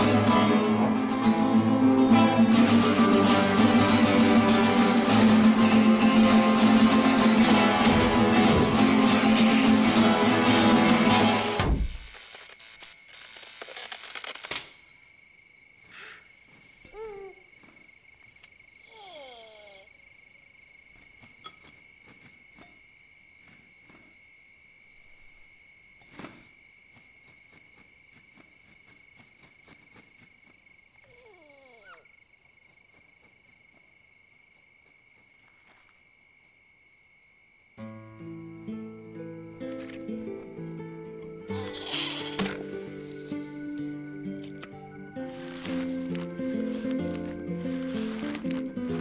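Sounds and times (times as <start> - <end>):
guitar music: 0.0 - 11.6, 37.8 - 49.0
crickets chirring: 0.2 - 49.0.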